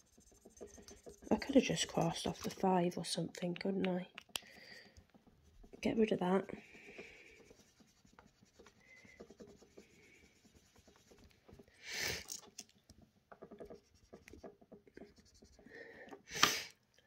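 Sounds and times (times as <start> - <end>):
marker squeaks: 0.0 - 2.6
marker scribbling on paper: 0.0 - 2.7, 5.6 - 11.3, 13.6 - 15.7.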